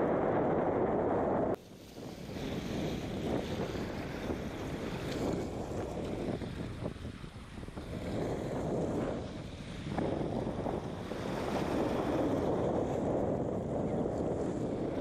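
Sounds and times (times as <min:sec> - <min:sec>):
wind buffeting microphone: 0:00.0 - 0:15.0
water lapping against rocky shore: 0:01.6 - 0:13.2.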